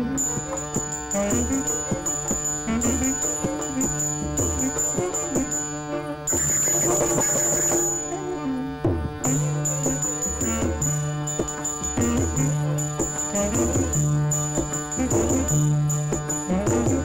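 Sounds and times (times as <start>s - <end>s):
hand drum strokes: 0.0s - 17.0s
held drone: 0.0s - 17.0s
sliding melody: 0.0s - 17.0s.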